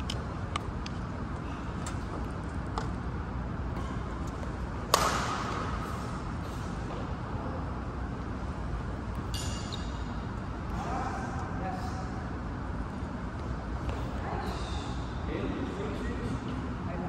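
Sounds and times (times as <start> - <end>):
low background noise: 0.0 - 17.0
racket smashing shuttlecock: 4.8 - 5.9.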